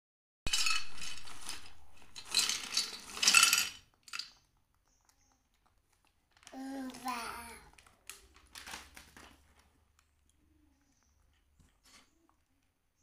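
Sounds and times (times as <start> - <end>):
crackers clattering on metal plate: 0.5 - 4.4.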